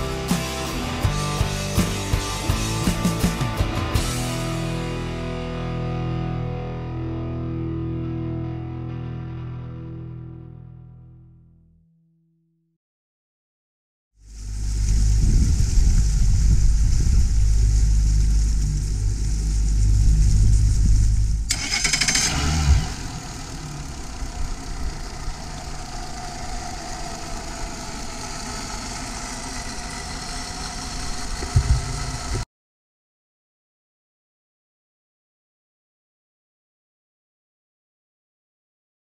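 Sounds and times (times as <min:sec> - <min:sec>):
outboard engines idling: 0:16.0 - 0:32.4
short knock: 0:31.5 - 0:32.0.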